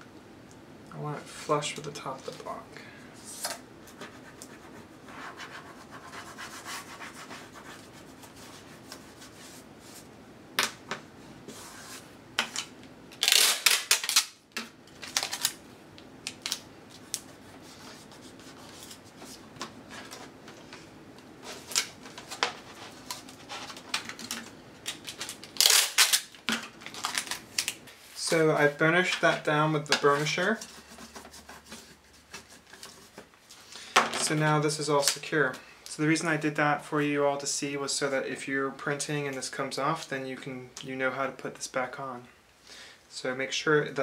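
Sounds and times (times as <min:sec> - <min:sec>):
hands rubbing tape on film: 0:03.3 - 0:10.1, 0:16.3 - 0:20.2
tape ripping from dispenser: 0:13.1 - 0:14.4, 0:15.0 - 0:15.6, 0:23.9 - 0:27.8.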